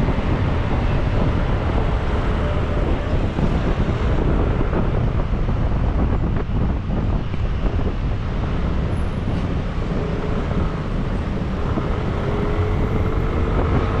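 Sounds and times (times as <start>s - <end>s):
surrounding traffic: 0.0s - 14.0s
wind noise on microphone: 0.0s - 14.0s.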